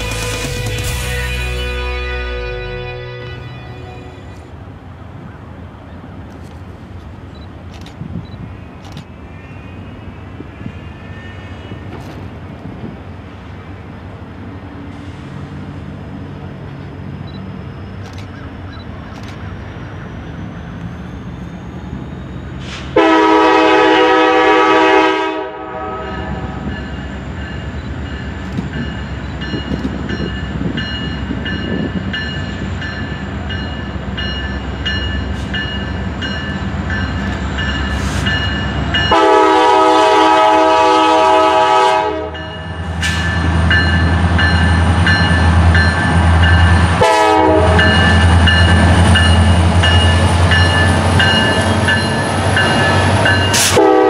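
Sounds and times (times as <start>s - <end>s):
locomotive horn blast: 0.0s - 4.6s, 22.6s - 26.7s, 39.0s - 43.3s, 46.9s - 48.4s, 53.5s - 54.0s
locomotive rumble: 0.0s - 54.0s.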